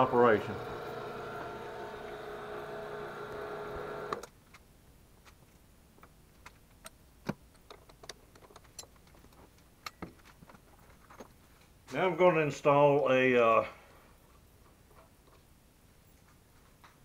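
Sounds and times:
milling machine spindle humming: 0:00.0 - 0:04.2.

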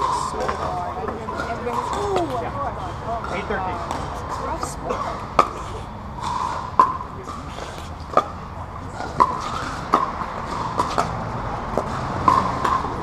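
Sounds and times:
ball bouncing: 0:00.0 - 0:02.6, 0:06.3 - 0:08.4, 0:09.0 - 0:13.0.

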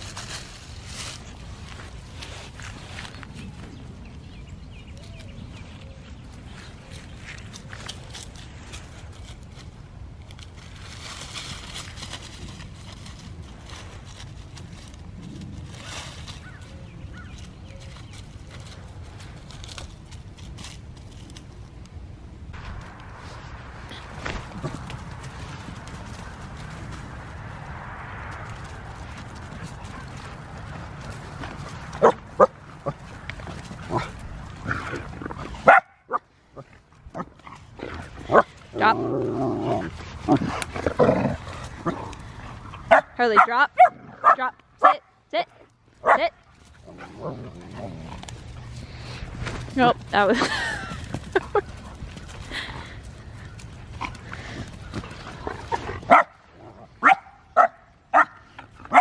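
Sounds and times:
low rustling: 0:00.0 - 0:44.8, 0:45.5 - 0:57.6
dog barking: 0:35.7 - 0:36.2, 0:56.1 - 0:56.3, 0:57.0 - 0:59.0
dog barking and growling: 0:42.8 - 0:45.1, 0:55.5 - 0:59.0.

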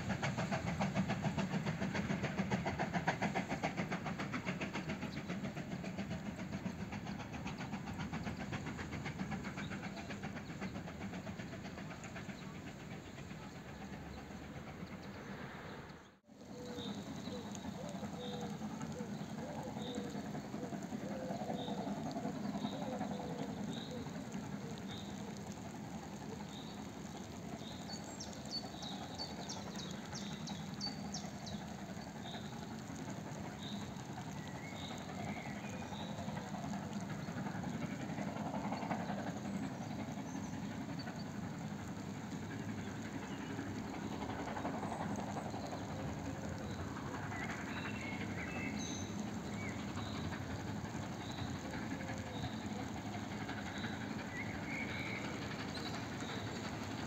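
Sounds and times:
high ticking bird calls: 0:16.5 - 0:57.0.

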